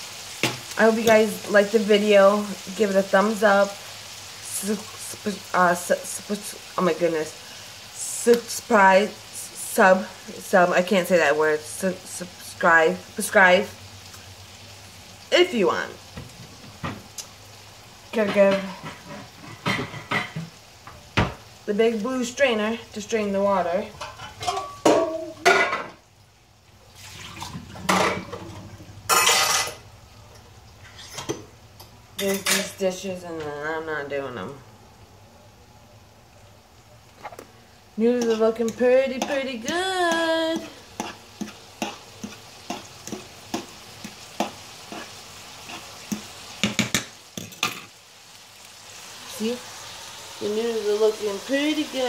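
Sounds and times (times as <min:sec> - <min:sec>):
chicken sizzling in a pan: 0:00.0 - 0:52.0
water pouring through strainer: 0:27.0 - 0:27.8
colander and pot knocking in sink: 0:46.6 - 0:47.8.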